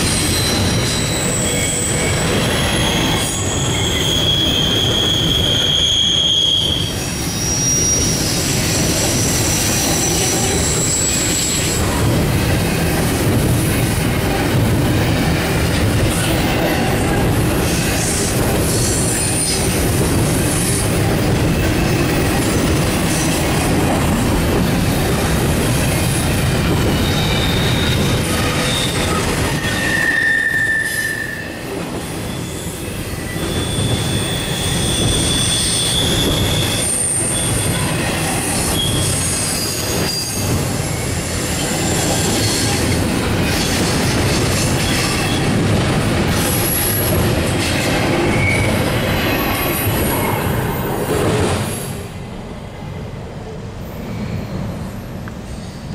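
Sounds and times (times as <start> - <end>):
high-pitched wheel squeals: 0.0 - 11.8, 26.9 - 31.6, 32.2 - 42.8, 48.2 - 50.6
steel wheels rumbling on rail: 0.0 - 55.9.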